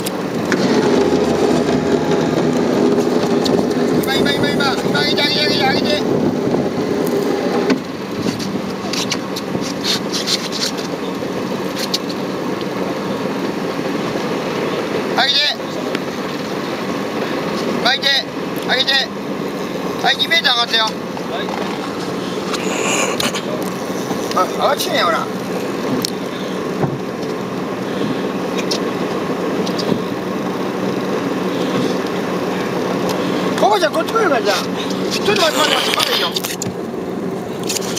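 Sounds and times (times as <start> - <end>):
boat engine idling: 0.0 - 37.9
wind and sea hiss: 0.0 - 37.9
short high rasps: 21.6 - 23.4.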